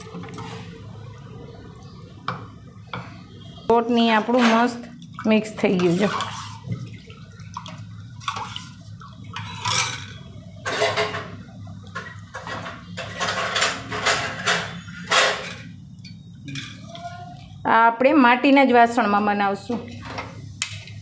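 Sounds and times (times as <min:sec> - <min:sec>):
spoon stirring batter in steel vessel: 0:03.0 - 0:10.2
liquid sloshing: 0:04.0 - 0:15.7.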